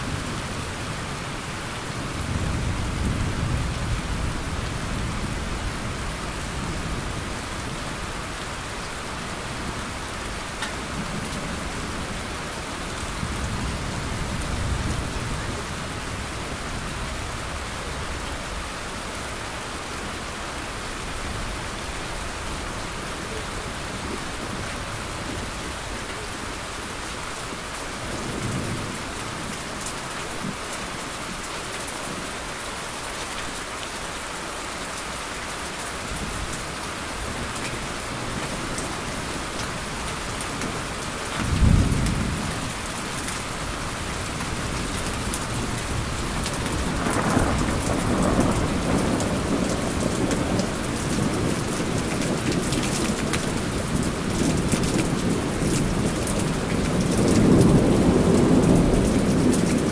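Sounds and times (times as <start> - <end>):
steady rain: 0.0 - 59.9
thunder rumbling: 41.3 - 59.9.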